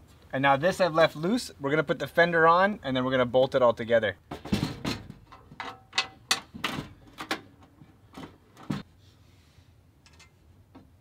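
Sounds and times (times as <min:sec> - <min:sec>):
light metallic clunks and knocks: 0:04.3 - 0:08.9.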